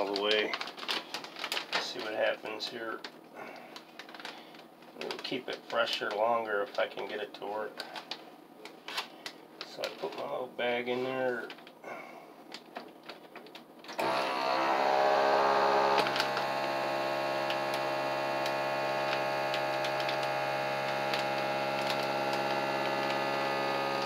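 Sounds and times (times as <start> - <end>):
vacuum sealer pump humming: 13.9 - 24.0.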